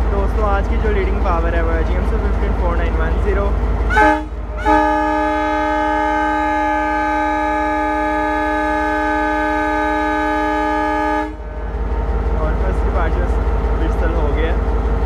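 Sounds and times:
locomotive horn blast: 3.9s - 11.6s.

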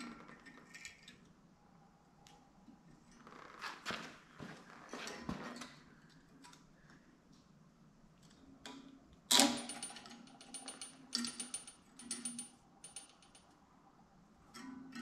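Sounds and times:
steel parts clicking and rattling: 9.3s - 13.5s.

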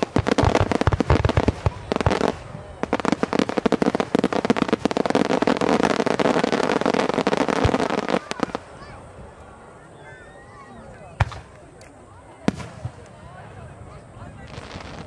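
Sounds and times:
fireworks booming: 0.0s - 9.3s, 11.1s - 11.6s, 12.4s - 13.3s
fireworks crackling: 0.0s - 15.0s.

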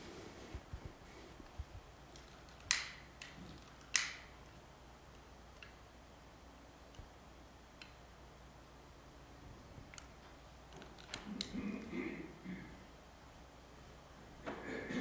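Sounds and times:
room tone hum: 0.0s - 15.0s
sharp clicks: 2.1s - 5.8s, 7.8s - 8.0s.

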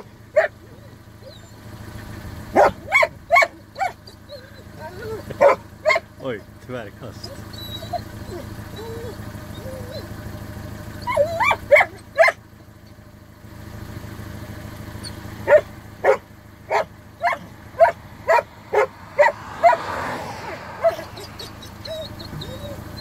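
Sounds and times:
dog barking: 0.0s - 0.6s, 2.5s - 4.0s, 4.9s - 6.1s, 11.1s - 12.4s, 15.4s - 21.6s
car driving past: 16.7s - 23.0s.

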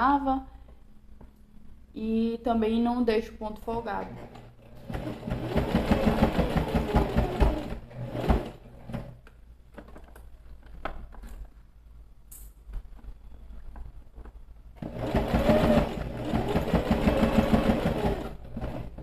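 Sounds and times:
sewing machine stitching: 3.9s - 9.2s, 14.8s - 19.0s.

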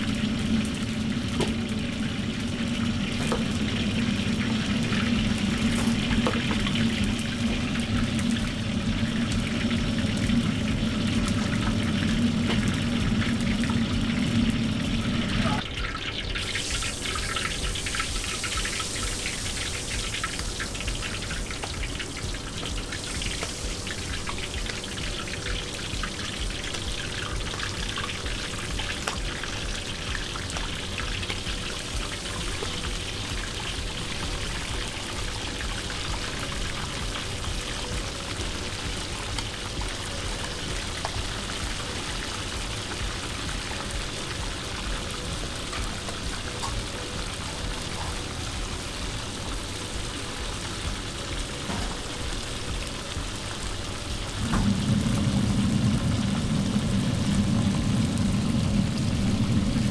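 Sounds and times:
batter frying in hot oil: 0.0s - 59.9s
low rumble: 54.2s - 59.9s.

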